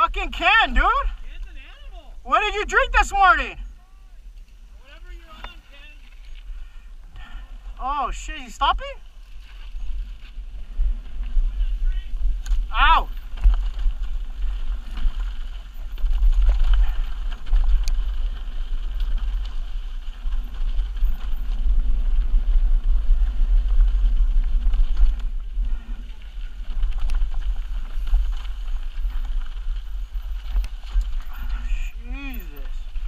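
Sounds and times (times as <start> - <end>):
wind rumble on microphone: 0.0 - 33.0
bike clicks and rattles: 9.1 - 33.0.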